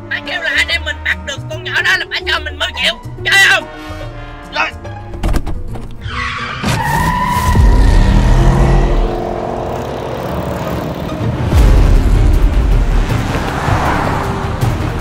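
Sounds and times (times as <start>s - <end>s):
tyre squeal: 6.0s - 8.9s
engine revving: 7.4s - 15.0s.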